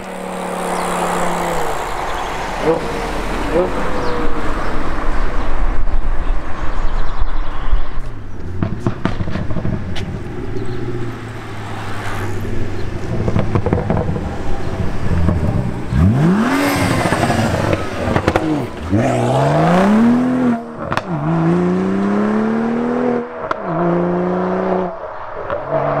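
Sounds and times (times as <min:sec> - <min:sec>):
car engines: 0:00.0 - 0:26.0
engine revving up: 0:13.1 - 0:24.9.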